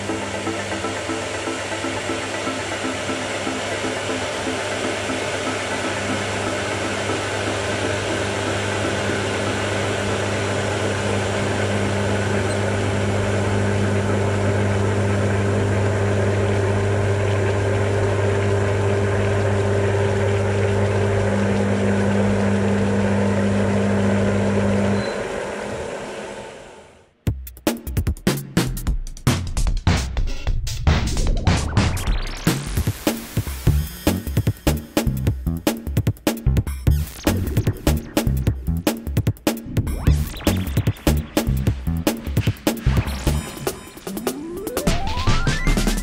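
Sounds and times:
cooling fan noise: 0.0 - 27.0
induction hob electrical hum: 0.0 - 27.0.

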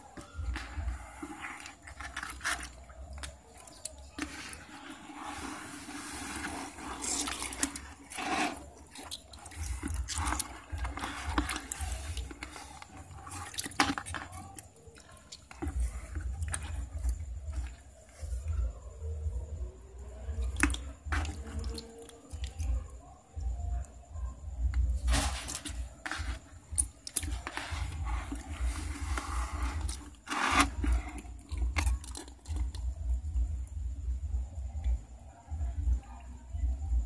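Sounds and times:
wet fish slapping and squelching: 0.0 - 23.8, 24.5 - 33.7
water sloshing in a plastic tub: 0.0 - 37.0.

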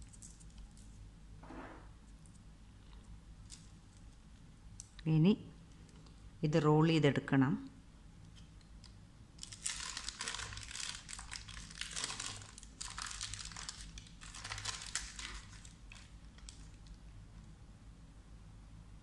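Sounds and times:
paper crinkling and rustling: 9.4 - 17.0.

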